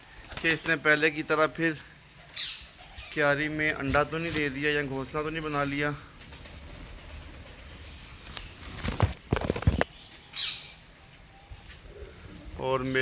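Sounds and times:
pigeon wings flapping: 0:00.0 - 0:00.8, 0:06.1 - 0:09.8.

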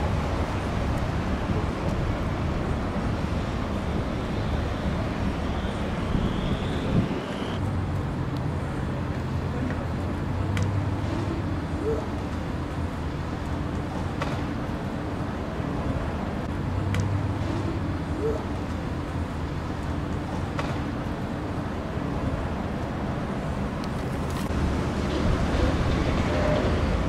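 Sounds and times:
city street traffic: 0:00.0 - 0:27.0.

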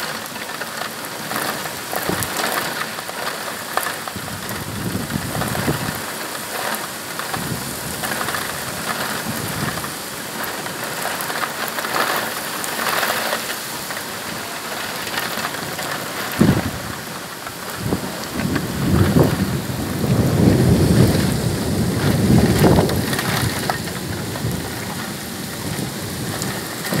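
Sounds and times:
heavy rain: 0:00.0 - 0:27.0
thunder: 0:04.4 - 0:06.0, 0:16.3 - 0:16.9, 0:17.6 - 0:27.0.

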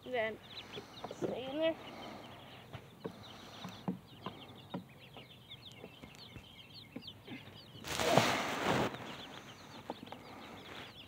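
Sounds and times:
chicks and ducklings peeping: 0:00.0 - 0:11.0
loud rustling near microphone: 0:07.8 - 0:11.0.

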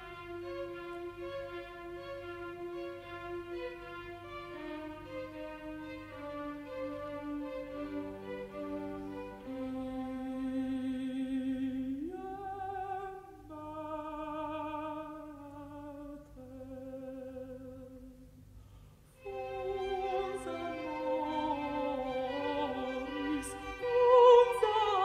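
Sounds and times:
strings and organ accompaniment: 0:00.0 - 0:10.6, 0:19.2 - 0:25.0
contralto voice singing: 0:19.2 - 0:25.0.

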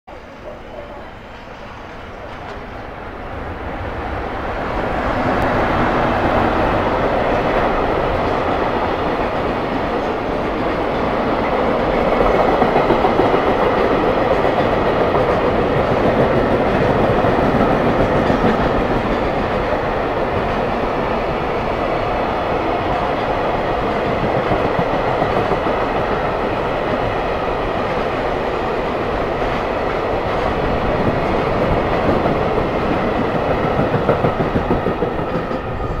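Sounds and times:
train wheels rumbling on rails: 0:00.1 - 0:36.0.

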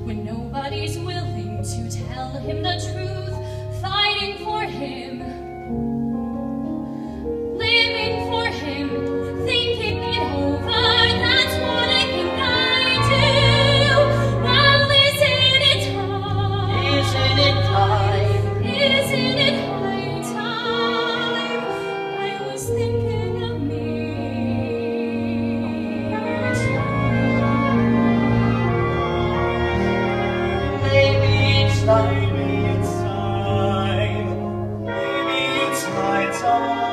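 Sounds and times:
woman singing operatic ballad: 0:00.0 - 0:05.7, 0:07.4 - 0:36.9
piano accompaniment: 0:00.0 - 0:36.9.

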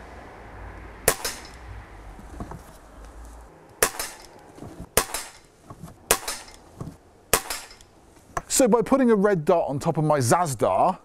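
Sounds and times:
air pistol shots: 0:01.1 - 0:01.6, 0:03.8 - 0:05.5, 0:06.1 - 0:06.6, 0:07.3 - 0:07.9.

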